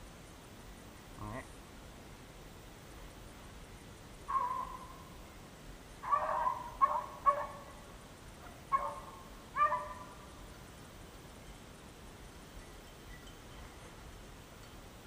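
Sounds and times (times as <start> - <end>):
hounds baying: 4.3 - 4.9, 6.0 - 7.8, 8.4 - 10.2.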